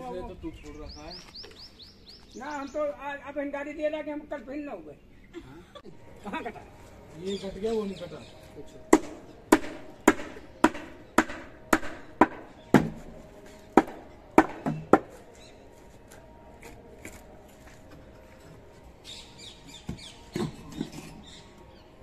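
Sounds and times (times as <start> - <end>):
hammer striking wood: 8.9 - 13.1, 13.8 - 15.2.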